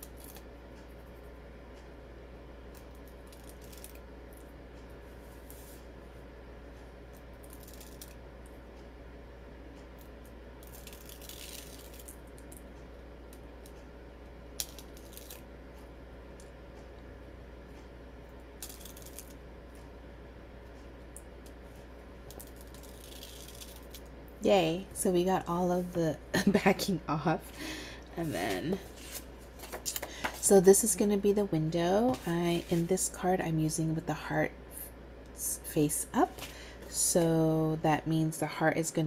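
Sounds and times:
steady low hum: 0.0 - 39.0
scratchy rustles of backing peeled: 5.1 - 5.9, 10.6 - 12.2, 22.4 - 24.0, 28.2 - 29.9, 32.0 - 33.0.

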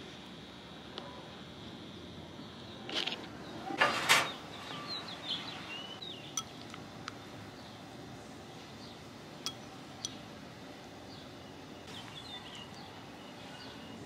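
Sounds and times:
bird chirping: 2.4 - 10.3, 11.0 - 14.0
dishes clinking: 9.5 - 10.2.

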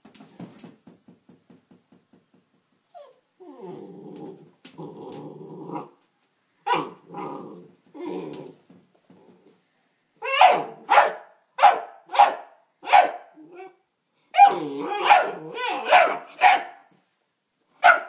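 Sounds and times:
puppy growling: 3.0 - 6.0, 6.7 - 9.6, 14.5 - 15.9
puppy barking: 6.7 - 7.3, 10.2 - 13.4, 14.4 - 16.9, 17.8 - 18.0.

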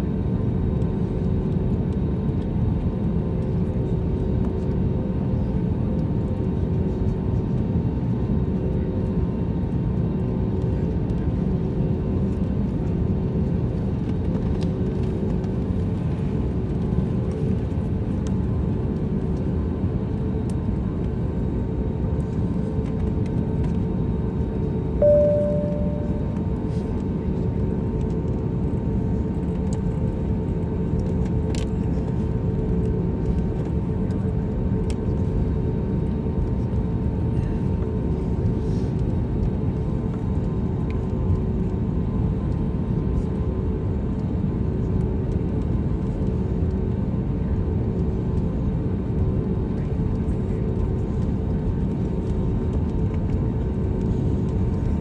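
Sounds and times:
aircraft cabin rumble: 0.0 - 55.0
short tone: 25.0 - 26.7
steady hum tones: 25.0 - 27.1.

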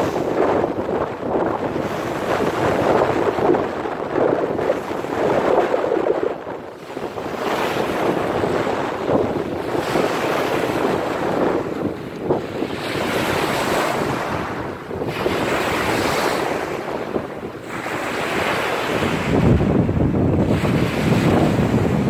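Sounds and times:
wind buffeting microphone: 0.0 - 22.0
waves washing up pebble shore: 6.8 - 22.0.

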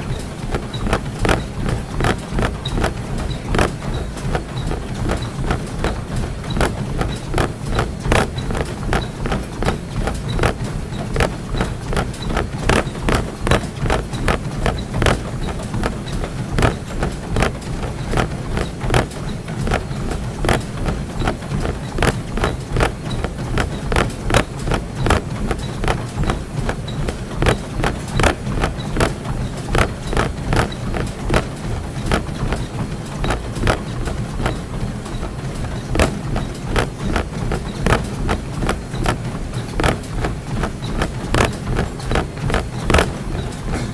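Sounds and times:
running footfalls on a treadmill: 0.0 - 43.9
treadmill motor humming: 0.0 - 43.9.

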